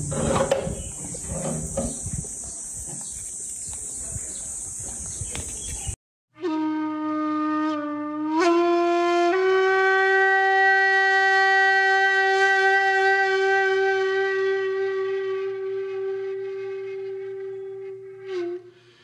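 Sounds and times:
reedy wind instrument note: 6.3s - 19.0s.

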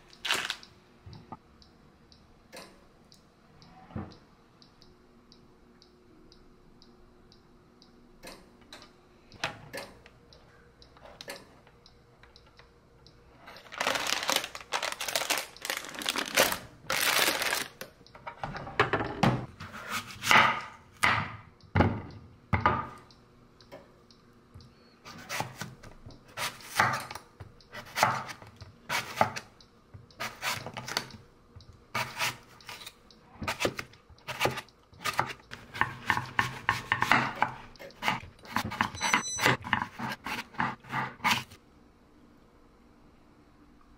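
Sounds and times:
knife slicing apple on board: 32.0s - 32.9s, 33.5s - 38.9s.

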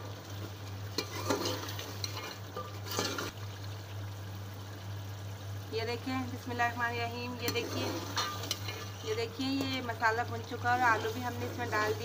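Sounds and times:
food frying in oil: 0.0s - 12.0s
low steady hum: 0.0s - 12.0s
spoon scraping a pot: 1.0s - 3.3s, 7.4s - 9.7s.

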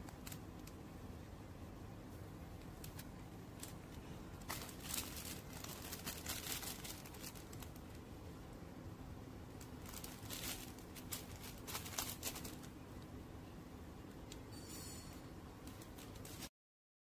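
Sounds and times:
plastic packaging crinkling: 0.0s - 0.9s, 2.6s - 8.1s, 9.5s - 12.8s, 15.6s - 16.5s.

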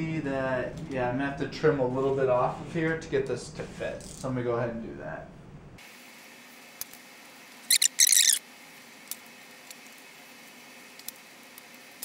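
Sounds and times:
foam board squeaking: 7.7s - 8.4s.

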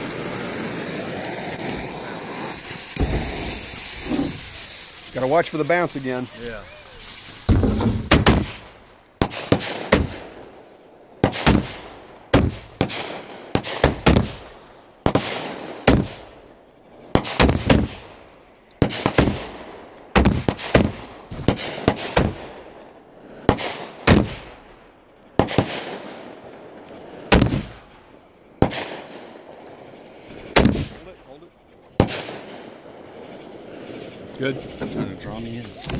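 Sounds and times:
fireworks bursting: 0.0s - 35.9s.

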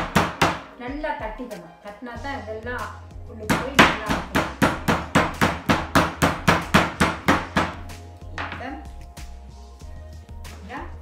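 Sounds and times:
meat mallet pounding chicken: 0.0s - 0.7s, 3.5s - 8.6s.

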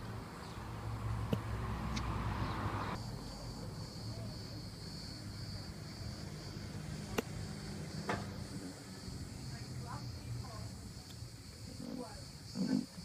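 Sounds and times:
vehicle rumble: 0.0s - 13.0s.

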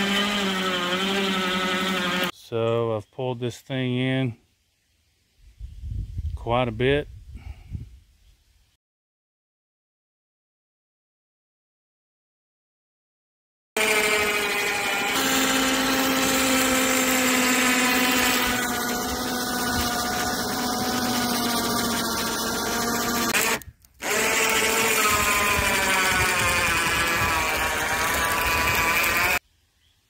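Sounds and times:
electric winch motor whining: 0.0s - 2.3s, 13.8s - 29.4s.

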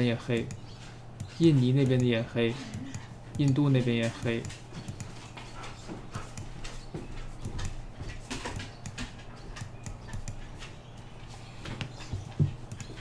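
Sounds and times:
steady low hum: 0.0s - 13.0s
mouse and keyboard clicking: 0.2s - 5.6s, 8.4s - 13.0s.

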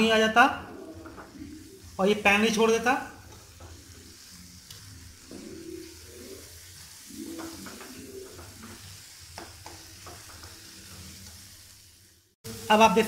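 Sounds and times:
light sizzle: 0.0s - 13.0s
low cooing calls: 0.6s - 2.0s, 5.2s - 8.8s.

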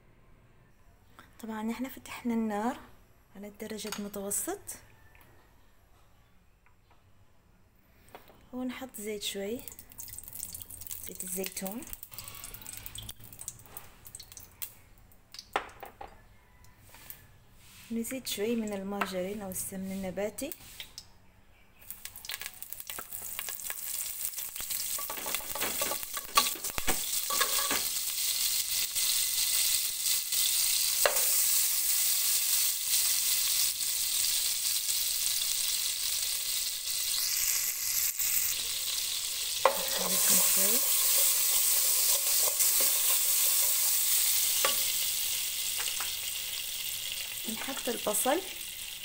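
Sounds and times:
fat sizzling in hot oil: 9.6s - 14.7s, 21.8s - 49.0s.

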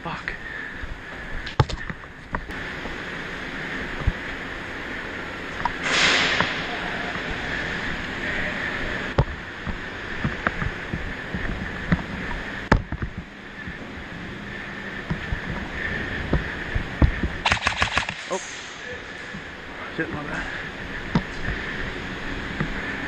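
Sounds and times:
brief loud hiss: 5.8s - 6.6s
sharp clicks: 17.4s - 18.4s.

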